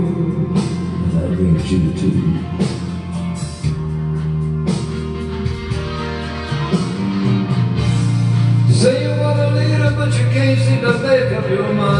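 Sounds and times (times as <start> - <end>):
guitar chords ringing: 0.0 - 11.9.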